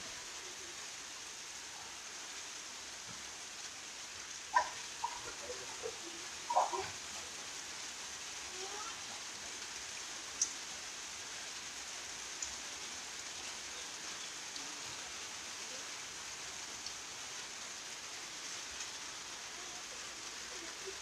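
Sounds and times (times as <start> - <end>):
steady rain-like hiss: 0.0 - 21.0
faint ticks: 10.4 - 10.6, 12.3 - 12.6.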